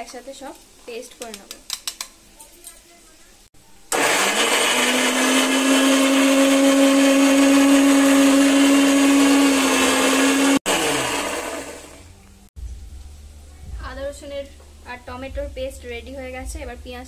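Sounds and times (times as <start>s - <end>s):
mixer grinder motor: 3.9s - 12.1s.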